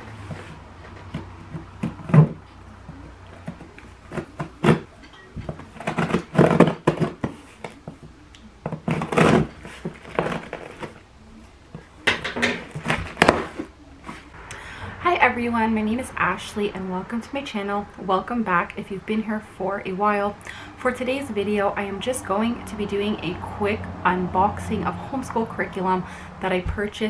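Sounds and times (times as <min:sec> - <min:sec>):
cardboard scraping and rustling: 0:00.0 - 0:02.5, 0:03.3 - 0:08.1, 0:08.7 - 0:11.0, 0:12.5 - 0:14.4.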